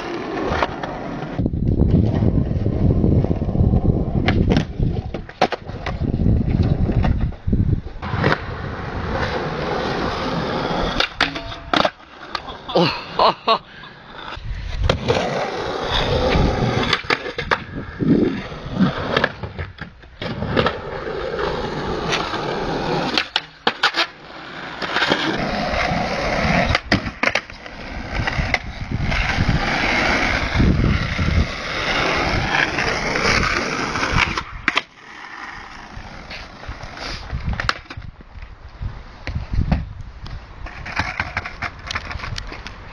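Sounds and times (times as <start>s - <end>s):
skateboard wheels rolling on concrete: 0.0s - 42.9s
skateboard clacking on ground: 3.7s - 12.7s, 16.0s - 17.8s, 22.0s - 38.5s, 40.6s - 42.9s.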